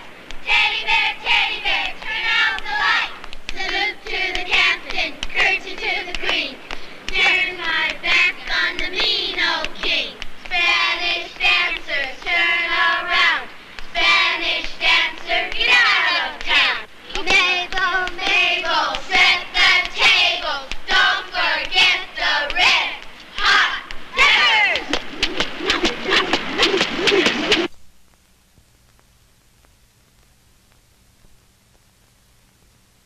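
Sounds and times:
children singing together: 0.4 - 24.9.

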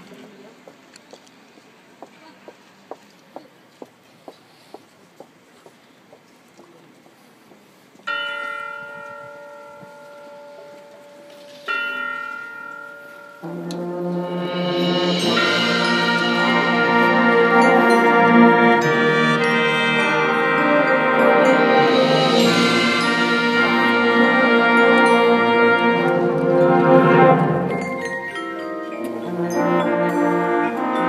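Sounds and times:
chime-like bell strokes: 8.1 - 31.0
brass section playing: 13.4 - 31.0.

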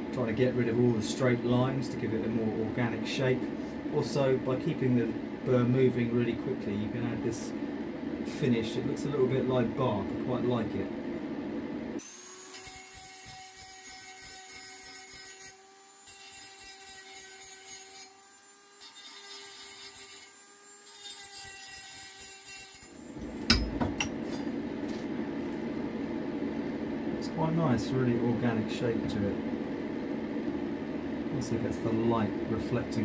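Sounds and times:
rotary tool grinding steel: 12.0 - 23.1.

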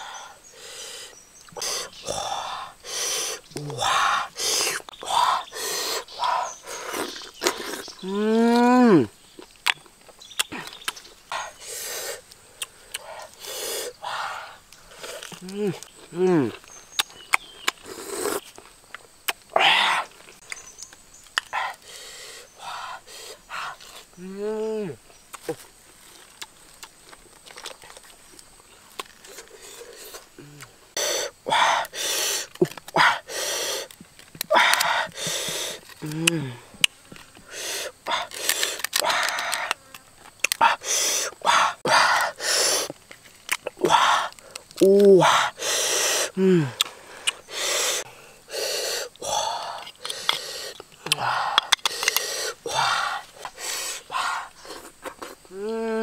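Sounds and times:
wet crunching and chewing: 6.6 - 11.5, 14.7 - 21.6, 25.3 - 30.7, 37.9 - 40.8, 42.1 - 45.1, 46.7 - 47.5
lip smacks: 9.4 - 13.9, 14.7 - 19.6, 45.8 - 48.1
sharp mouth clicks: 9.6 - 13.9, 14.7 - 18.5, 43.5 - 48.0, 49.0 - 52.6
sharp clicks: 46.8 - 47.5.

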